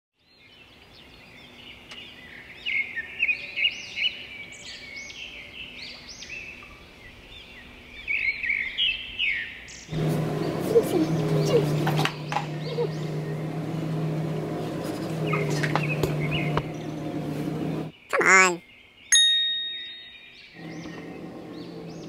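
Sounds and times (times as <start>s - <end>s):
small birds chirping: 0.2s - 22.0s.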